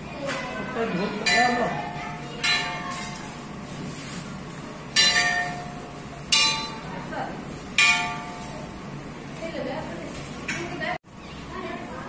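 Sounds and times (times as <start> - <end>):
temple bell ringing: 5.0 - 6.9, 7.8 - 8.7.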